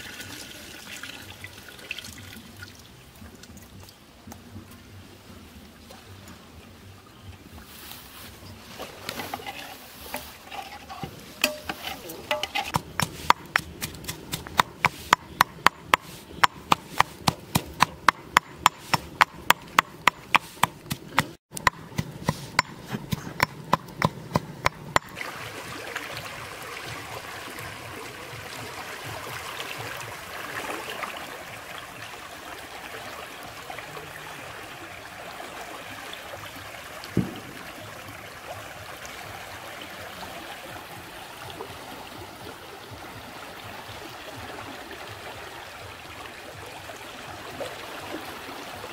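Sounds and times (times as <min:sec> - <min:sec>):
water rushing through sluice: 0:24.0 - 0:48.9.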